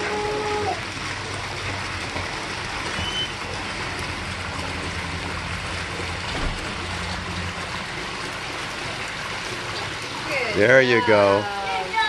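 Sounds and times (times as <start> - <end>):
water jet splashing into pool: 0.0 - 12.0.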